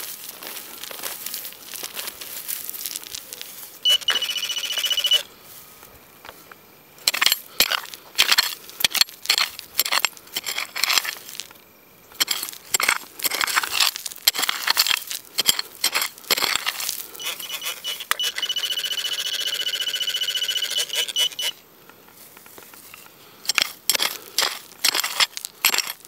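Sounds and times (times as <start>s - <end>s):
coil rustling through dry grass: 0.0s - 3.9s, 5.4s - 6.5s, 11.1s - 11.6s, 13.9s - 14.3s, 16.1s - 17.2s
metal detector beep: 3.8s - 5.3s, 17.2s - 21.6s.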